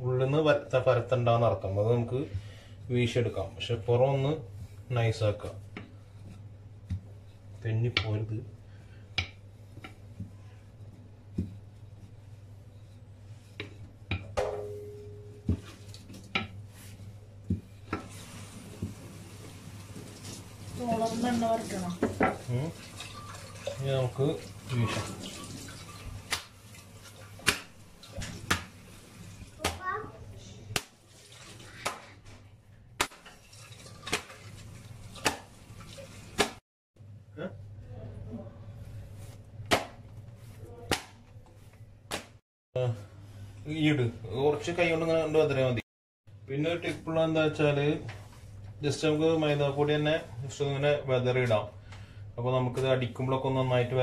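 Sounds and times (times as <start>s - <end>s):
low steady hum: 0.0s - 30.8s
rolling pin rolling dough: 9.1s - 14.3s
dough slapped on stone countertop: 9.2s - 10.0s, 27.4s - 27.7s, 28.5s - 28.7s, 31.8s - 32.1s, 33.0s - 33.2s, 35.2s - 35.5s, 36.4s - 36.6s, 39.6s - 40.1s, 40.9s - 41.2s, 42.1s - 42.4s.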